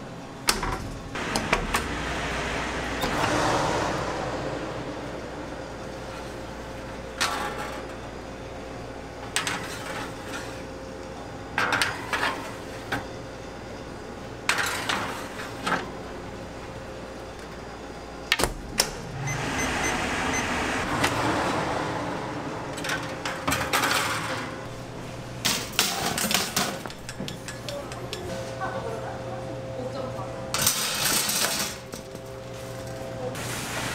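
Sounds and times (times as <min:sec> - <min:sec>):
steady machine hum: 0:00.0 - 0:11.6, 0:15.5 - 0:25.9
metal trays and oven doors clanking: 0:22.7 - 0:24.7.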